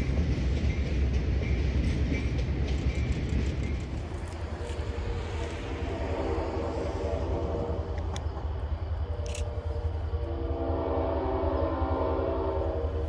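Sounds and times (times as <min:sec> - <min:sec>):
low rumble of train: 0:00.0 - 0:13.0
locomotive horn chord: 0:10.2 - 0:12.8.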